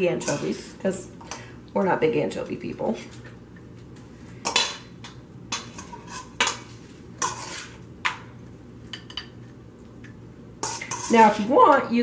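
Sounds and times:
serving utensils scraping a bowl: 0.0 - 0.7, 5.5 - 7.9, 10.6 - 11.6.

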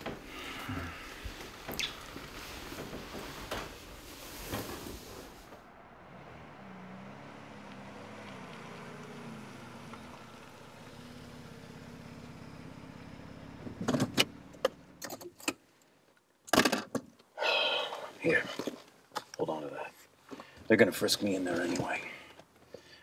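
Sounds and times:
car engine running: 5.0 - 15.0.

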